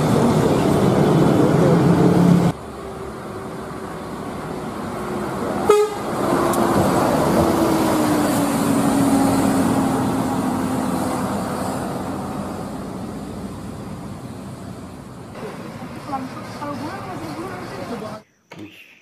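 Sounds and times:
bus driving past: 0.0s - 18.2s.

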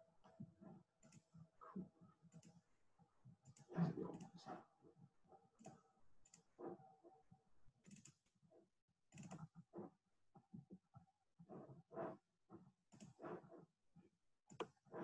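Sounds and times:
faint irregular clicks: 0.2s - 1.5s, 2.1s - 6.9s, 7.8s - 8.5s, 9.1s - 13.6s, 14.5s - 15.0s.

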